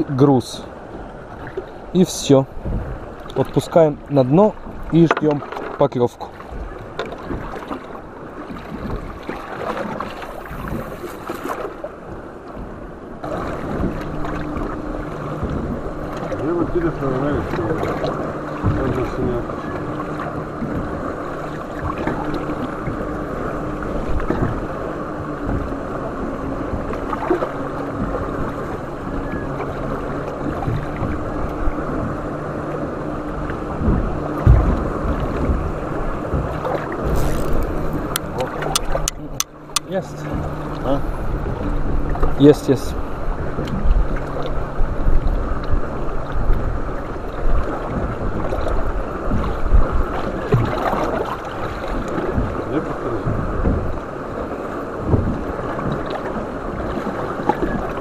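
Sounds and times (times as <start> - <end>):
outboard motor humming: 0.0 - 58.0
water splashing against boat hull: 0.0 - 58.0
wind buffeting microphone: 0.8 - 5.4, 6.5 - 58.0
low knocks: 2.6 - 3.0, 17.4 - 19.4, 25.3 - 29.5, 32.8 - 42.4, 52.1 - 54.0.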